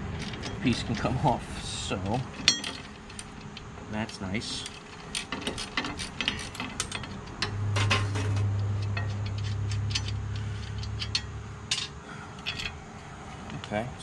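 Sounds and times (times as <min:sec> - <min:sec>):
metal clicks and clinks: 0:00.1 - 0:01.2, 0:02.0 - 0:12.8
loud low steady hum: 0:06.5 - 0:14.0.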